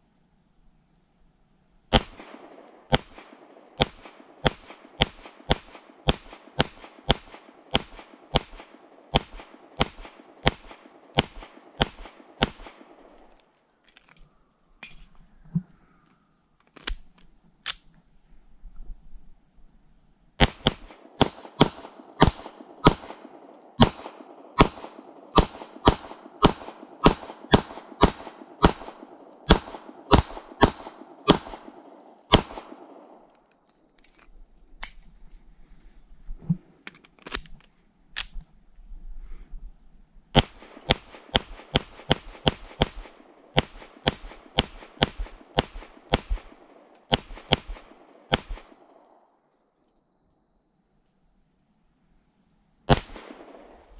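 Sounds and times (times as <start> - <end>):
pistol shots: 1.9 - 13.1, 20.4 - 33.3, 40.4 - 49.1, 52.9 - 53.9
pistol clicks: 1.9 - 13.5.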